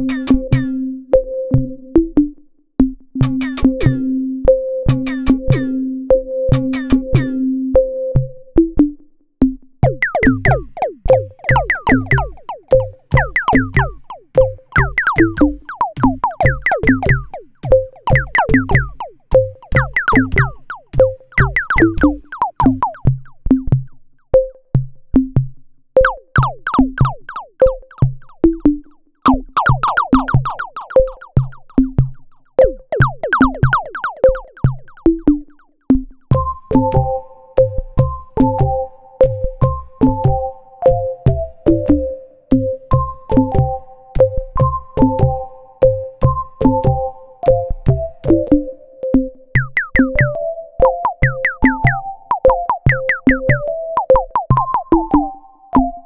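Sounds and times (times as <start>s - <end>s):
drum-machine beat with kick thumps: 0.0s - 0.8s, 1.6s - 4.0s, 4.9s - 5.7s, 6.5s - 7.4s, 8.2s - 56.0s
plucked synth notes falling in pitch: 9.8s - 23.7s, 26.0s - 32.0s, 32.6s - 35.6s, 36.3s - 56.0s.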